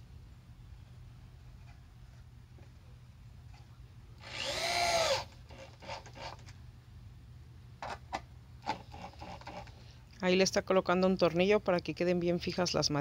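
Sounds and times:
power drill whirring: 4.2 - 6.4.

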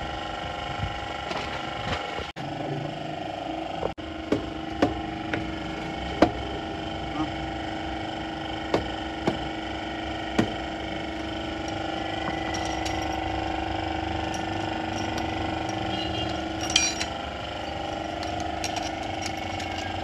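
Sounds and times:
steady machine hum: 0.0 - 20.0
metal tools clinking: 11.6 - 20.0.

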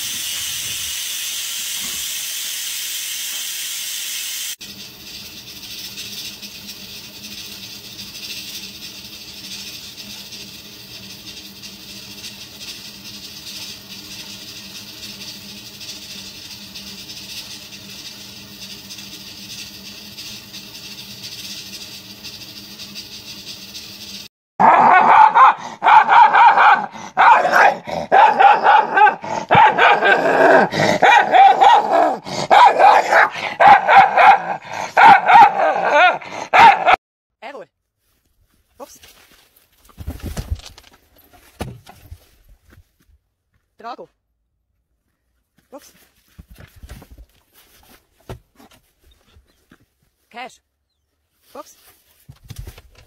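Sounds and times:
steady hiss: 0.0 - 24.3
dogs barking and snarling: 24.6 - 37.0.

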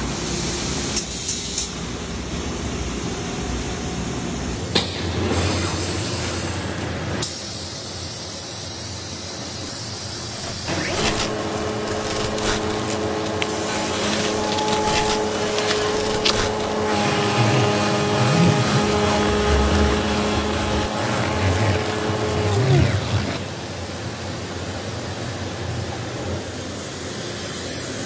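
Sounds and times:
tyre buffing machine humming: 10.0 - 23.4
scattered clicks: 10.1 - 16.9.

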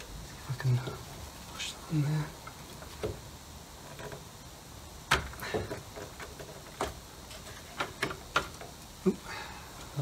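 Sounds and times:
light clicks and knocks: 2.3 - 4.4, 5.0 - 9.0.

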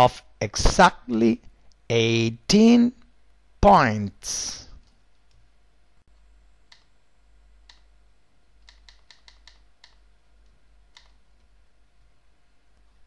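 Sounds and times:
faint computer mouse clicks: 6.7 - 6.9, 7.6 - 7.9, 8.6 - 11.5.

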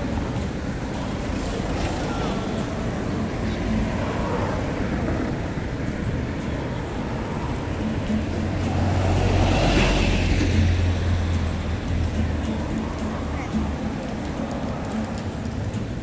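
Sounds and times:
bus engine rumble: 0.0 - 16.0
road traffic passing: 0.0 - 16.0.

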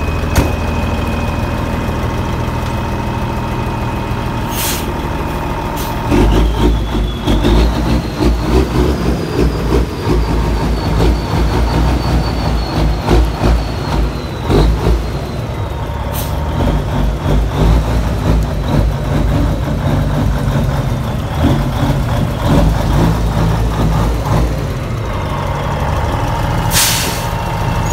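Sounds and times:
truck engine idling: 0.0 - 27.9.

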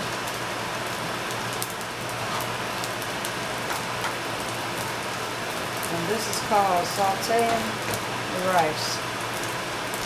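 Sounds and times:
food sizzling in butter: 0.2 - 10.0
spatula stirring in skillet: 2.0 - 4.3.

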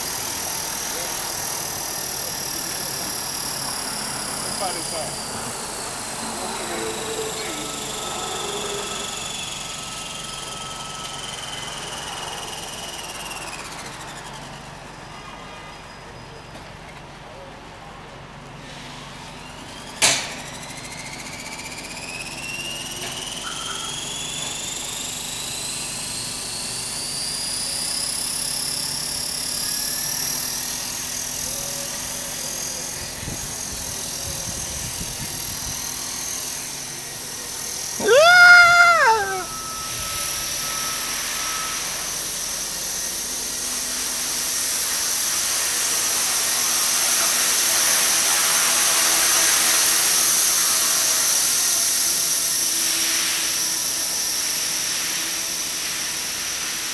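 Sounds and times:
electric helicopter whine: 0.0 - 16.4, 18.5 - 56.9
short rising and falling cry: 38.0 - 39.9.

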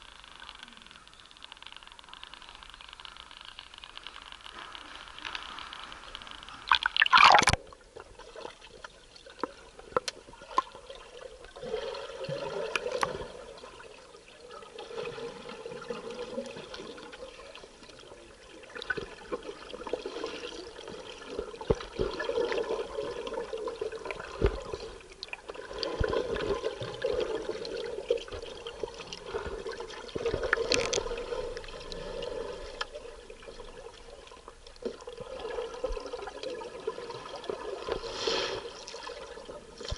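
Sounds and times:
small clicks underwater: 0.0 - 11.6, 12.5 - 13.4, 16.1 - 36.5
underwater water sounds: 0.0 - 39.9
water splashing: 5.2 - 8.8.

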